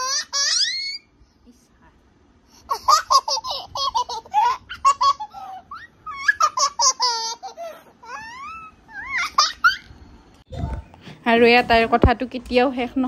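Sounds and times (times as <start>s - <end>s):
toddler laughing: 0.0s - 1.0s, 2.6s - 10.0s.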